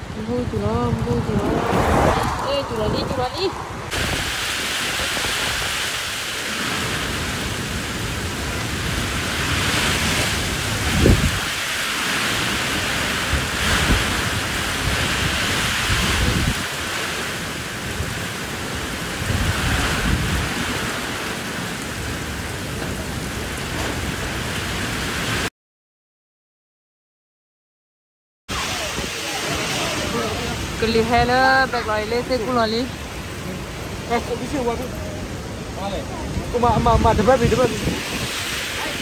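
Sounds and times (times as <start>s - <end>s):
heavy rain and hail: 0.0s - 25.5s, 28.5s - 39.0s
low thunder rumbles: 0.4s - 11.6s.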